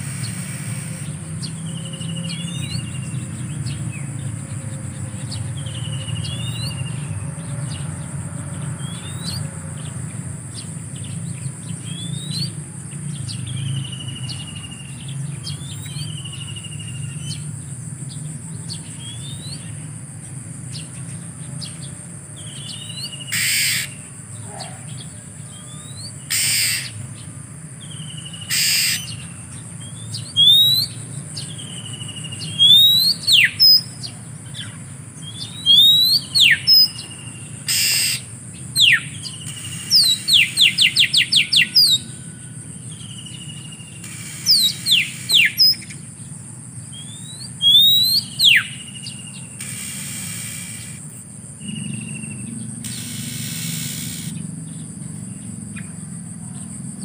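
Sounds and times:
bird harsh rasping calls: 0.0 - 7.9, 21.6 - 27.2, 27.9 - 42.3, 43.0 - 46.1, 46.9 - 54.8
high insect drone: 0.0 - 57.0
bird whistling calls: 8.8 - 9.5, 11.8 - 12.6, 22.4 - 24.9, 25.5 - 27.0, 27.9 - 42.3, 43.0 - 46.0, 46.9 - 51.0, 51.6 - 54.4.

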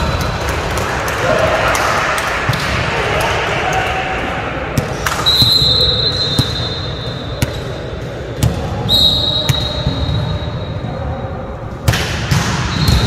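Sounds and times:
volleyball bouncing on gym floor: 8.4 - 10.4, 11.8 - 13.0.

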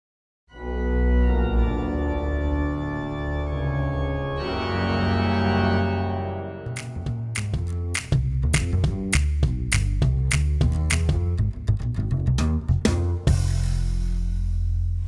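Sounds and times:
sustained organ chords: 0.5 - 8.0.

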